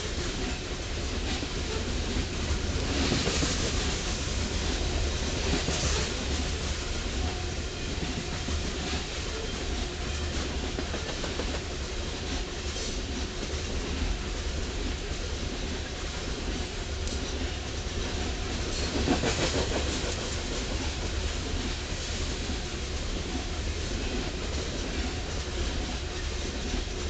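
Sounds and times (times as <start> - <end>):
train wheels rumbling on rails: 0.0 - 27.0
wheels clickety-clack: 0.0 - 27.0.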